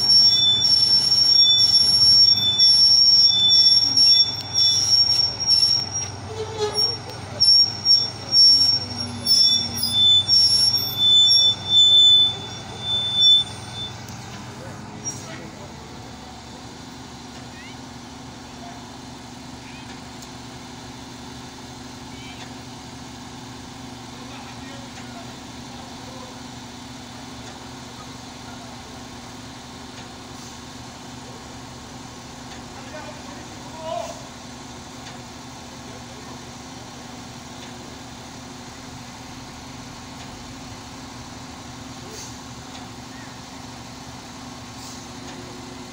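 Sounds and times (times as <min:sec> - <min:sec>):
high-pitched metallic squeals: 0:00.0 - 0:15.6
diesel engine running: 0:00.0 - 0:45.9.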